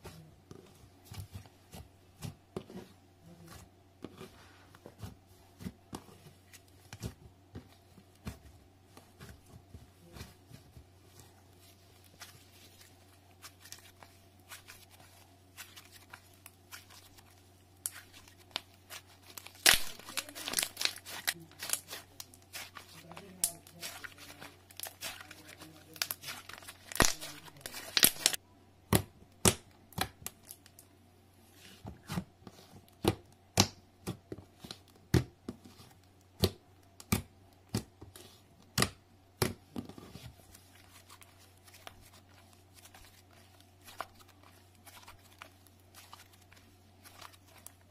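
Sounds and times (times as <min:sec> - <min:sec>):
low steady hum: 0:00.0 - 0:47.9
slime crackling and popping: 0:17.8 - 0:28.4.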